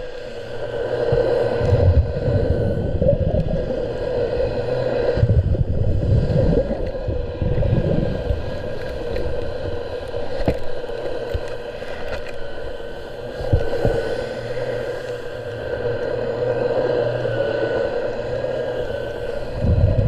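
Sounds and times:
steady mechanical hum: 0.0 - 20.0
water churning: 0.0 - 20.0.

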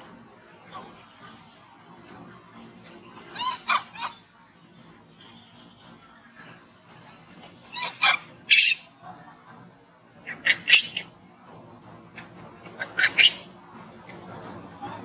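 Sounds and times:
baby monkey squealing: 3.4 - 4.2, 7.7 - 9.0, 10.3 - 11.1, 12.2 - 13.5.

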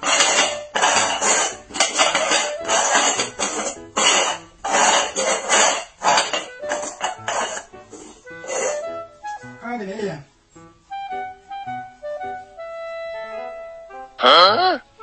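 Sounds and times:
bowls scraping on concrete floor: 0.0 - 9.1
faint background music: 0.0 - 15.0.

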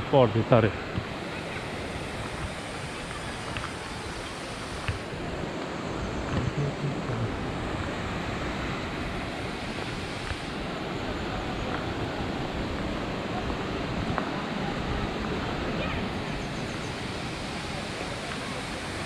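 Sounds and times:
waterfall rushing: 6.4 - 19.0.

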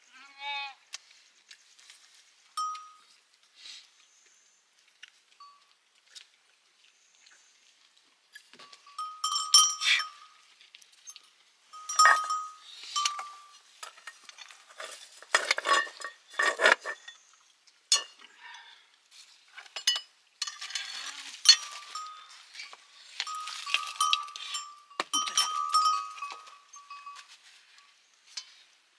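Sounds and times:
steel dishes clinking and scraping: 8.6 - 10.4, 11.0 - 17.3, 17.9 - 18.3, 19.6 - 27.4.

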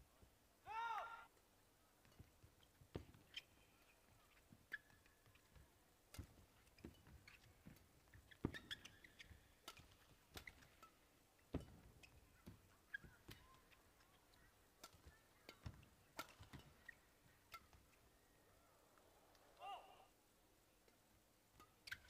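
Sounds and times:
shoes squeaking on court floor: 2.0 - 18.0, 21.6 - 22.0
racket striking shuttlecock: 6.1 - 14.2, 14.8 - 17.9.

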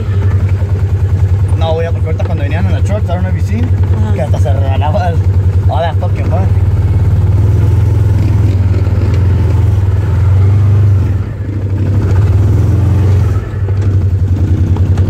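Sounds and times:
off-road vehicle engine running: 0.0 - 15.0.

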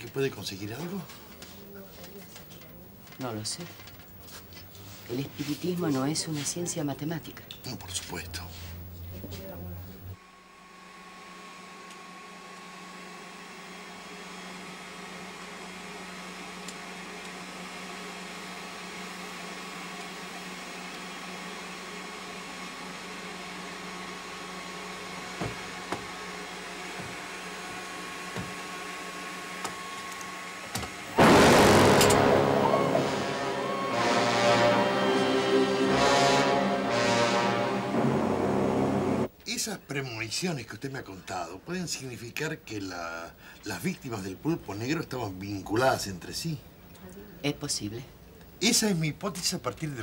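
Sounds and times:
vacuum cleaner humming and whining: 9.4 - 39.3
dramatic music: 31.2 - 39.3.

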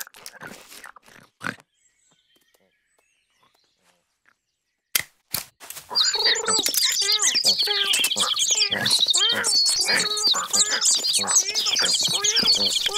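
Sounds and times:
cartoon animal squeaks and grunts: 5.9 - 12.9
faint bird chirps: 5.9 - 12.9.

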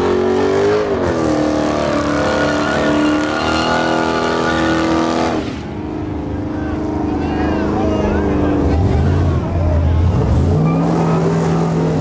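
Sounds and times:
car engine revving hard: 0.0 - 5.8, 10.0 - 12.0.

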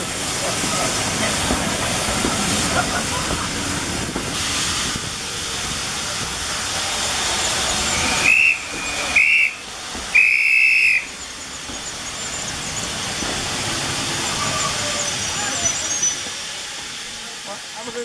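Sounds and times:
steam hissing: 0.0 - 18.0
steam locomotive whistle: 7.9 - 11.2.

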